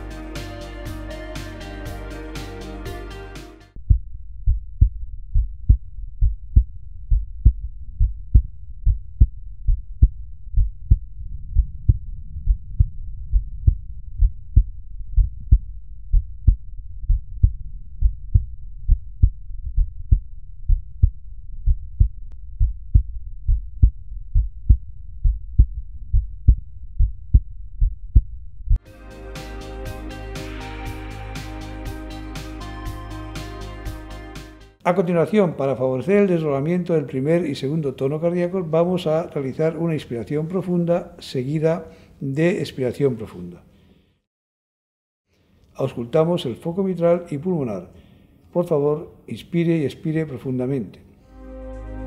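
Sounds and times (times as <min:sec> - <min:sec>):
heartbeat lub-dub: 0:03.8 - 0:34.4.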